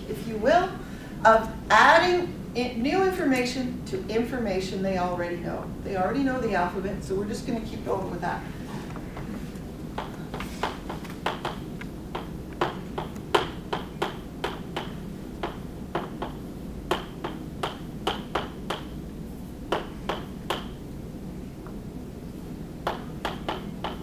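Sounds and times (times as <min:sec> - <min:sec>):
low room hum: 0:00.0 - 0:24.0
chalk tapping on blackboard: 0:10.0 - 0:19.0, 0:22.9 - 0:24.0.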